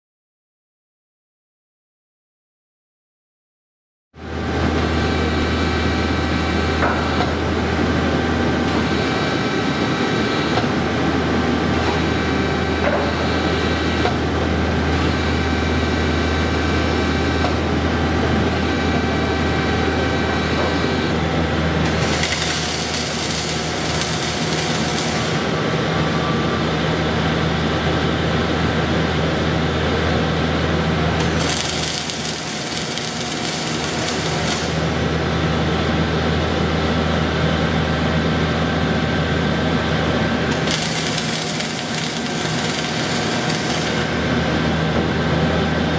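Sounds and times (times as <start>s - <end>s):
machine humming: 4.2s - 45.9s.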